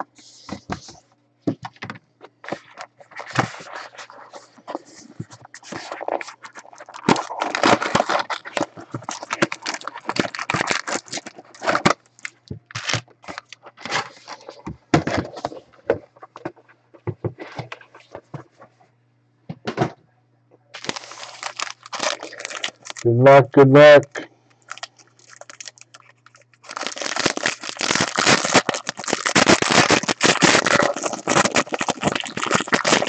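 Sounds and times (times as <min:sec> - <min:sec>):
packaging crinkling: 0:01.7 - 0:16.6, 0:20.8 - 0:23.1, 0:24.6 - 0:33.0.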